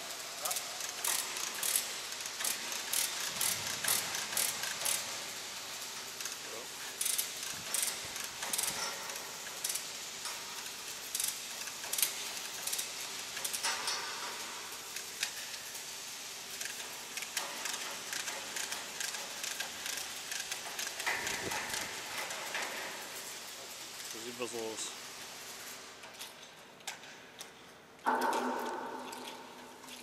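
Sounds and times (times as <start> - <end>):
steady background noise: 0.0 - 30.0
metal clicks and knocks: 26.1 - 30.0.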